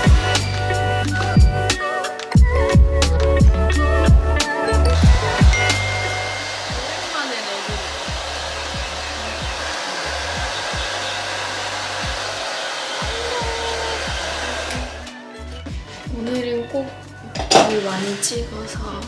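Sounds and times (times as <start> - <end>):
hair dryer running: 5.1 - 16.3, 17.3 - 18.8.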